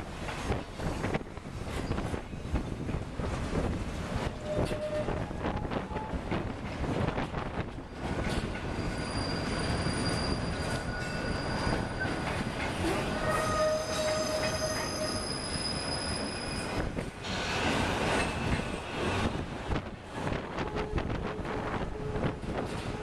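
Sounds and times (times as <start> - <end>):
train rumble: 0.0 - 23.0
train wheels squealing on rail: 1.7 - 2.5, 4.2 - 6.2, 7.9 - 19.1.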